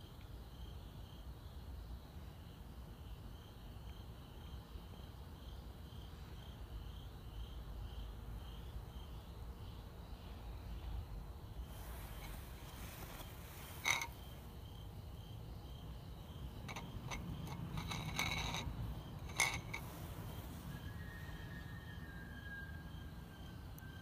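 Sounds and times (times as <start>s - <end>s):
crickets chirping: 0.0s - 24.0s
ceramic bowl clinking: 13.0s - 14.2s, 16.6s - 20.0s.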